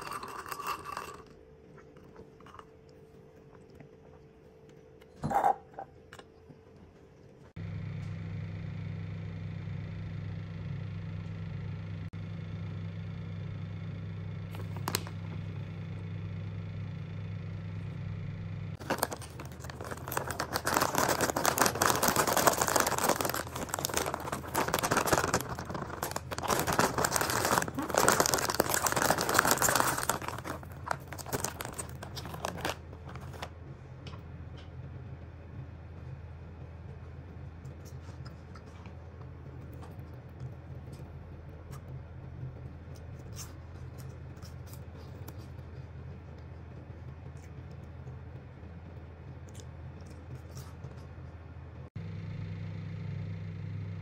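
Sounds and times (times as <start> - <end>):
steady low hum: 0.0 - 54.0
corn puffs pouring into a dish: 18.8 - 33.5
foil bag crinkling: 18.8 - 33.5.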